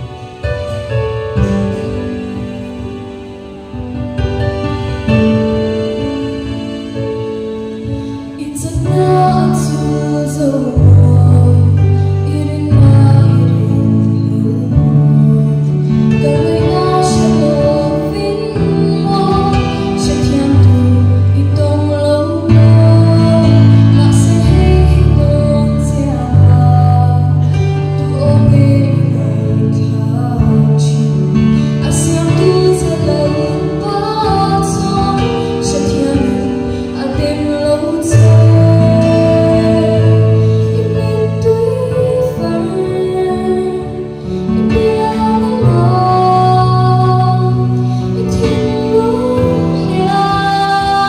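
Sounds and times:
instrumental accompaniment: 0:00.0 - 0:51.0
woman singing: 0:08.0 - 0:51.0.

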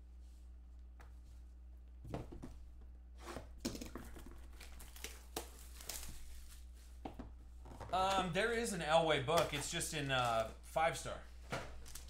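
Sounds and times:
wrapper crinkling and rustling: 0:04.4 - 0:06.8, 0:11.7 - 0:12.0.

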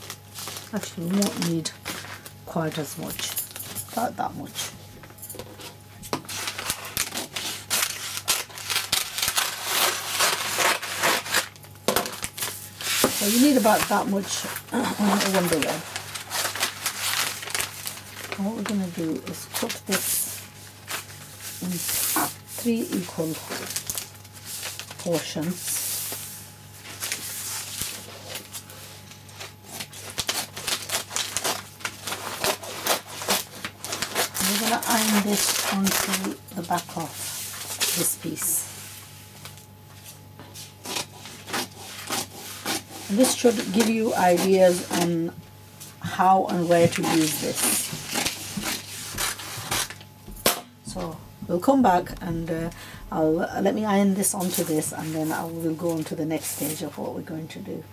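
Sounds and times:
crackling rustle of sheet: 0:00.0 - 0:04.0, 0:05.6 - 0:41.6.

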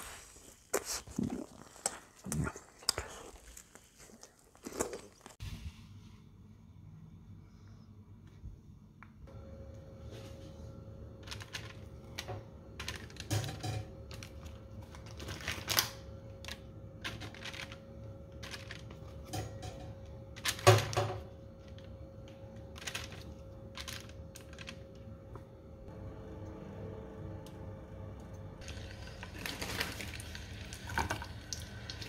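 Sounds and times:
baking paper crinkling: 0:00.0 - 0:05.4, 0:14.0 - 0:19.3, 0:20.4 - 0:25.2, 0:28.6 - 0:31.0
faint steady hum: 0:05.5 - 0:32.0.

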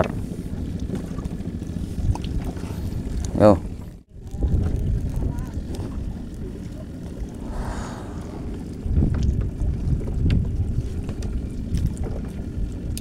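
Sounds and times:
wind buffeting microphone: 0:07.3 - 0:09.3.

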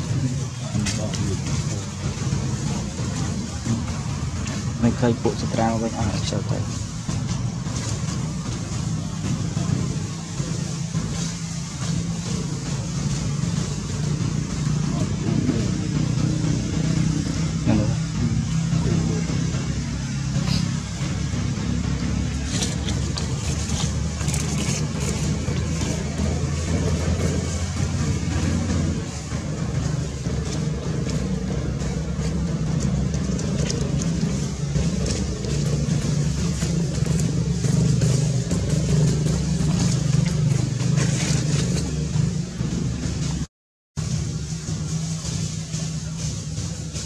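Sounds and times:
motor engine humming: 0:00.0 - 0:47.0.

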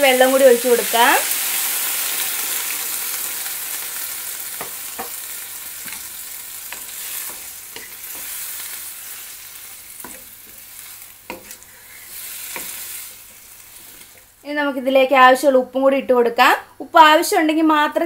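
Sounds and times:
loud sizzling in a wok: 0:00.0 - 0:14.5.

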